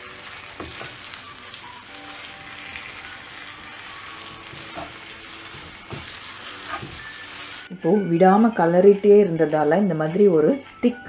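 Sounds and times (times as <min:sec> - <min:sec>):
batter sizzling in oil: 0:00.0 - 0:07.7
spatula scraping pan: 0:02.4 - 0:07.5.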